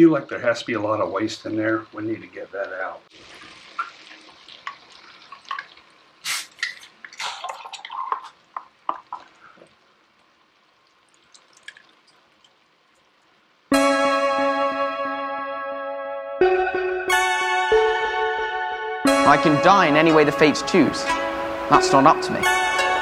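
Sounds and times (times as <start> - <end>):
liquid splashing into a pot: 3.1 - 13.4
short hissing burst: 6.2 - 6.6.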